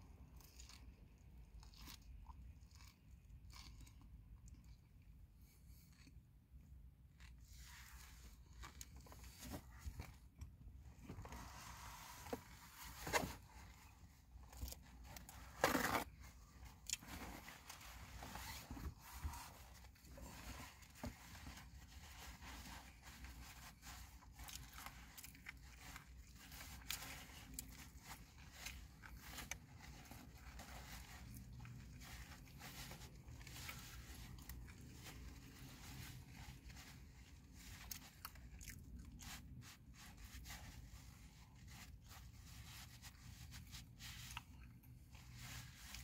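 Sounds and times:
person chewing and crunching: 0:00.0 - 0:06.4, 0:16.0 - 0:17.0, 0:24.2 - 0:35.5, 0:37.6 - 0:39.4.

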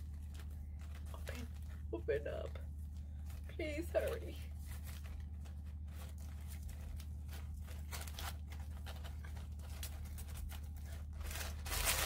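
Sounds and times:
steady low hum: 0:00.0 - 0:12.0
package being opened: 0:05.0 - 0:12.0.

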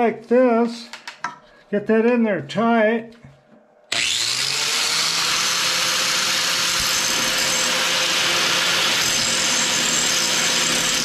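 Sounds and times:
angle grinder grinding metal: 0:03.9 - 0:11.0.

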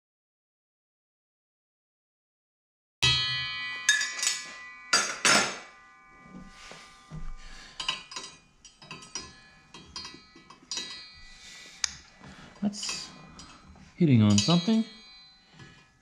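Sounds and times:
wrenches clanking on metal: 0:07.7 - 0:16.0
saw blade ticking: 0:07.8 - 0:16.0.

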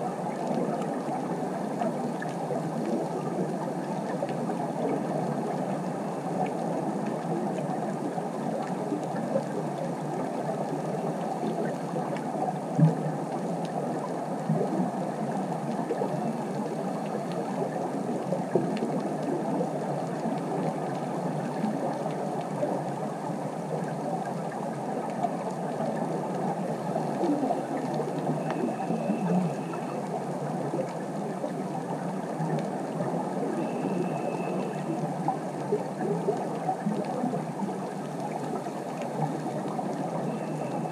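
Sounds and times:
faint short high tone: 0:33.6 - 0:34.9, 0:40.3 - 0:40.9.

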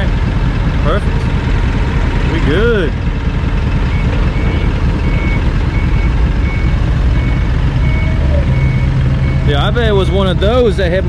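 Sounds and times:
forklift engine running: 0:00.0 - 0:11.0
reverse alarm beeps: 0:03.8 - 0:10.8.

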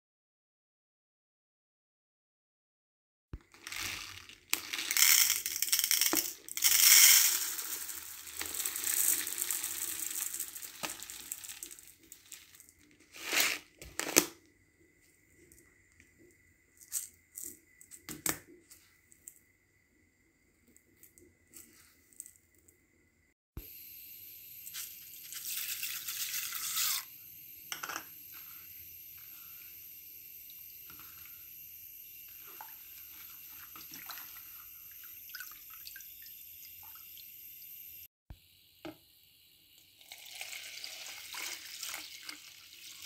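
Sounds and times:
rice poured into plastic bowl: 0:03.4 - 0:14.2.

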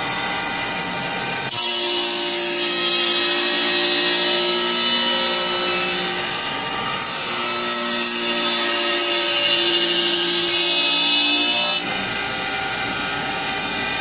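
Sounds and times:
machine motors whining: 0:00.0 - 0:14.0.

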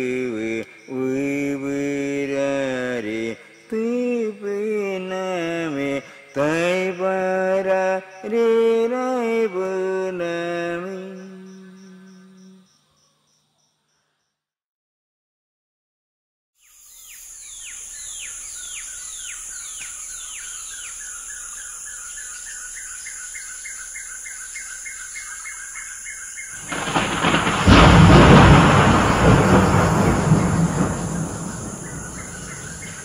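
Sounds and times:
high insect drone: 0:00.0 - 0:13.7, 0:16.6 - 0:33.0
bird falling calls: 0:26.6 - 0:33.0
thunder rumble: 0:26.6 - 0:33.0.

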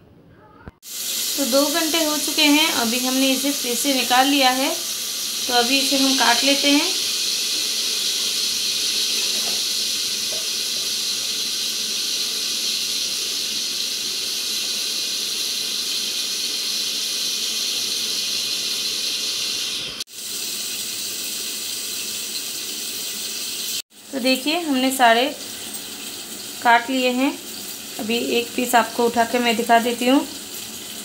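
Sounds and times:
steady hiss: 0:00.8 - 0:24.2.

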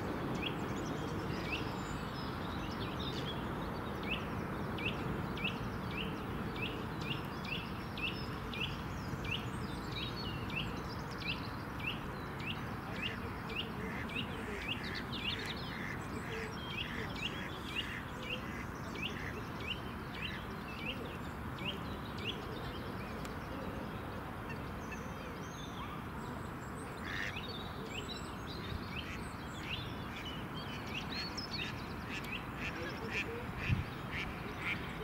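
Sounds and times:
outdoor background hiss: 0:00.0 - 0:35.0
birds chirping: 0:24.5 - 0:35.0.

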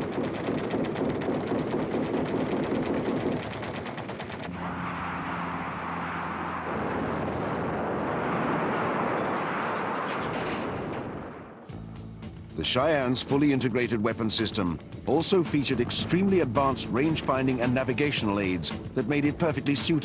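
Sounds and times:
low hum: 0:00.0 - 0:12.6.

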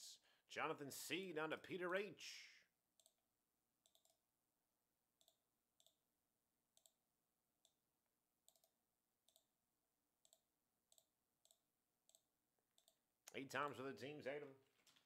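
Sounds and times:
computer mouse clicks: 0:03.0 - 0:03.2, 0:03.8 - 0:04.2, 0:05.2 - 0:06.0, 0:06.7 - 0:07.0, 0:08.4 - 0:09.5, 0:10.2 - 0:12.2, 0:12.8 - 0:13.4.

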